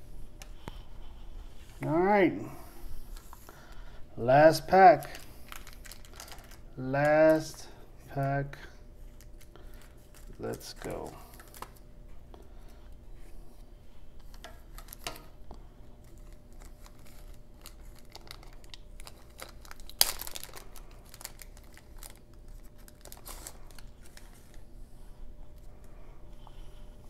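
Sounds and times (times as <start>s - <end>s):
wax paper crinkling: 4.6s - 7.6s, 9.0s - 11.8s, 16.0s - 24.7s.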